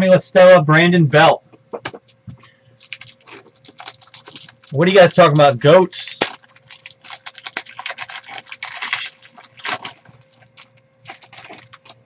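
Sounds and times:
foil wrapper crinkling: 2.8 - 12.0.

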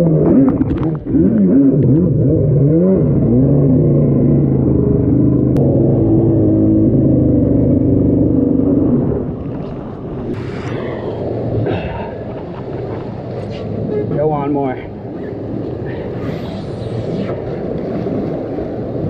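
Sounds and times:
jet ski engine revving: 0.0 - 9.4.

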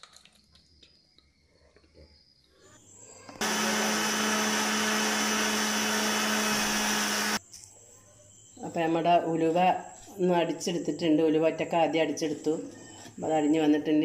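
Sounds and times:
mixer grinder running: 3.4 - 7.4.

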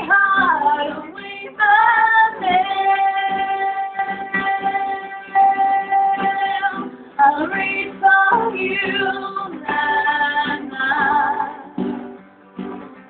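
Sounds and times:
person singing: 0.0 - 12.0
strummed acoustic guitar: 0.0 - 13.0.

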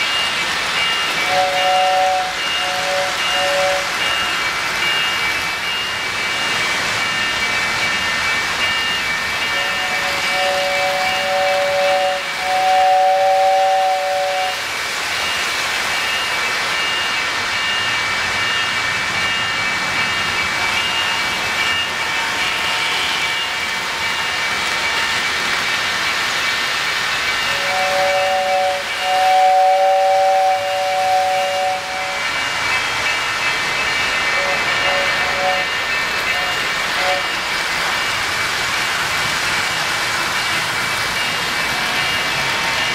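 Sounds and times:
model trains rolling on track: 0.0 - 42.9
two-note train whistle: 1.2 - 4.0, 9.5 - 14.6, 27.5 - 32.4, 34.4 - 37.4.

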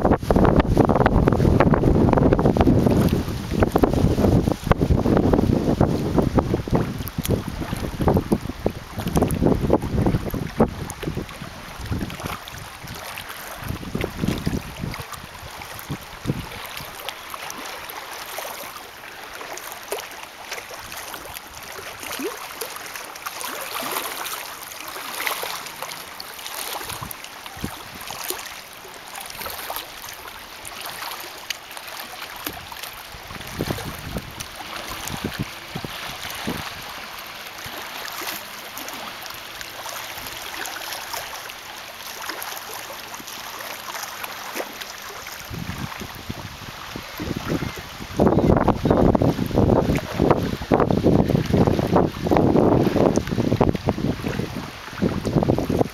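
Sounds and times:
wind gusts buffeting microphone: 0.0 - 17.0, 32.4 - 37.0, 45.4 - 55.9
small waves lapping: 0.0 - 55.9.

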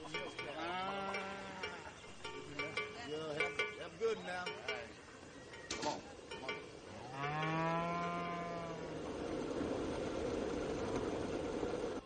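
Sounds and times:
low drawn-out animal call: 6.9 - 9.2.

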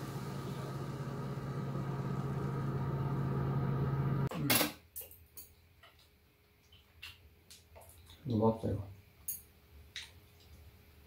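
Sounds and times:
induction cooktop humming: 0.0 - 4.3.

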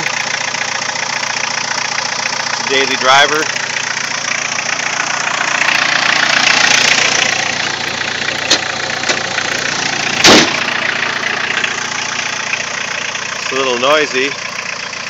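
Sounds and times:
diesel engine idling: 0.0 - 15.0
short loud thump: 10.2 - 10.6.

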